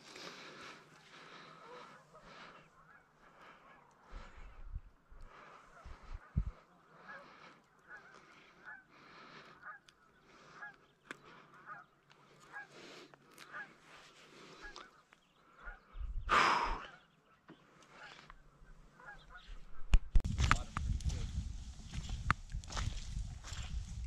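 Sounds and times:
geese honking: 0:01.3 - 0:04.5, 0:05.3 - 0:15.0, 0:18.9 - 0:19.8.

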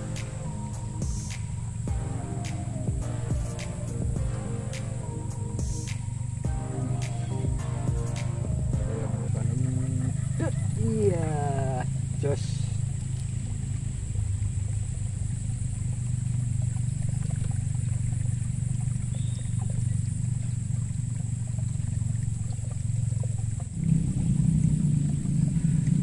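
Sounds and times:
motorbike engines humming: 0:00.0 - 0:26.0.

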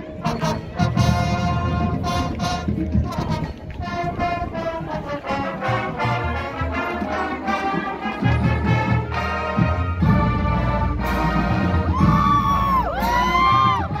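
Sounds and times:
marching band brass playing: 0:00.0 - 0:14.0.

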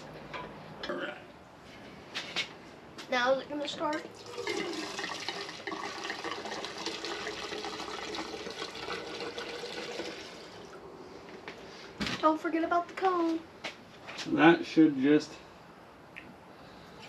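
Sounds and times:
gasoline pouring into canister: 0:04.1 - 0:10.8.

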